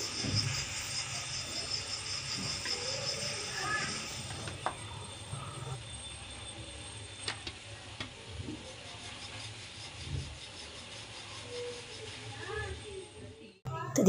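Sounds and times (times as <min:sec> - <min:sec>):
steady low hum: 0:00.0 - 0:07.2
rolling pin rubbing on dough: 0:08.7 - 0:12.9.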